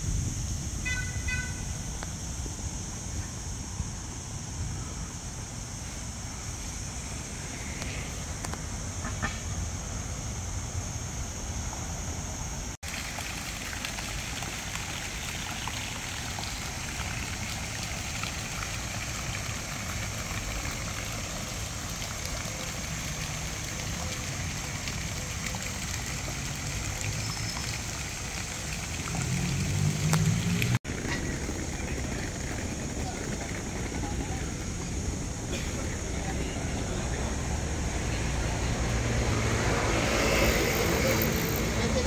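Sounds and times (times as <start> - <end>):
fountain water splashing: 12.8 - 42.0.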